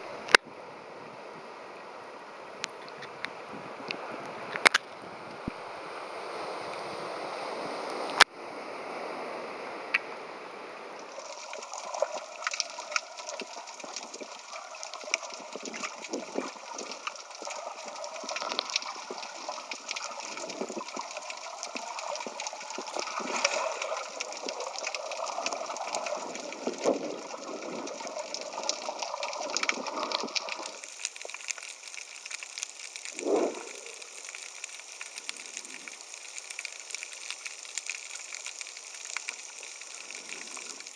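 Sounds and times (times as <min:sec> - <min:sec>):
wind: 0:00.0 - 0:40.9
small crackles and clicks: 0:02.6 - 0:05.5, 0:11.0 - 0:40.9
shallow surf: 0:02.8 - 0:37.7
underwater water gurgling: 0:11.0 - 0:40.9
deep water surge: 0:11.1 - 0:30.8, 0:33.1 - 0:34.3.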